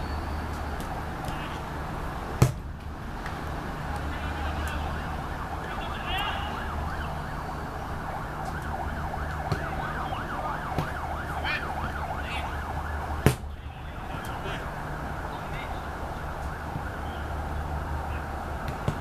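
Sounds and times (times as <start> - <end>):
distant wailing siren: 4.0 - 19.0.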